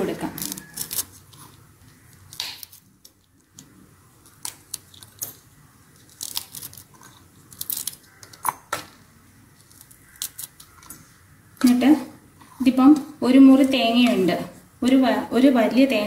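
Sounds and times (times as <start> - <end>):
chillies snapping: 0.3 - 1.1, 1.9 - 5.4, 6.0 - 8.8, 9.6 - 11.0.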